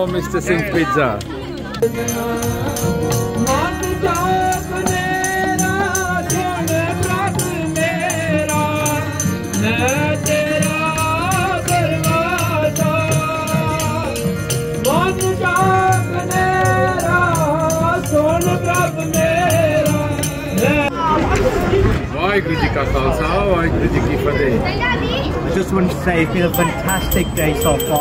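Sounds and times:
quick percussion beat: 0:00.1 - 0:20.9, 0:26.5 - 0:28.0.

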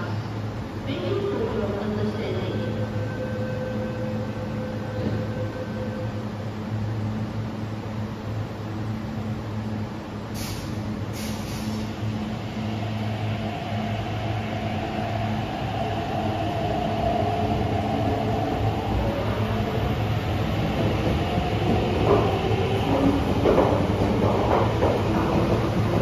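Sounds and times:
short air hisses: 0:10.4 - 0:12.0.

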